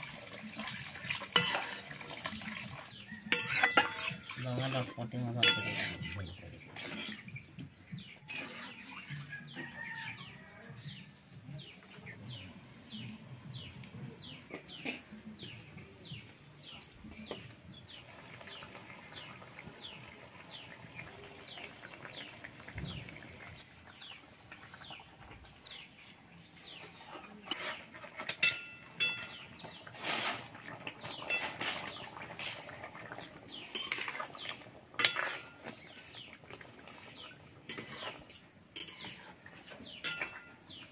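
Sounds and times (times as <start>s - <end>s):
metal spatula scraping a wok: 1.2s - 10.3s, 25.6s - 40.9s.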